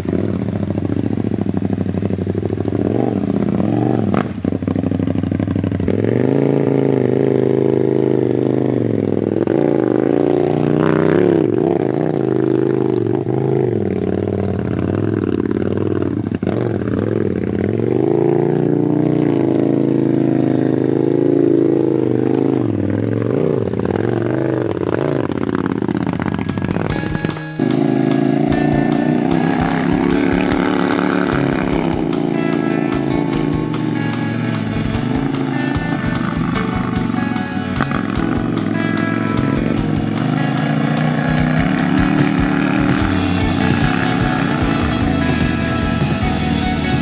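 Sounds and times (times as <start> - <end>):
kart engine revving: 0.0 - 47.0.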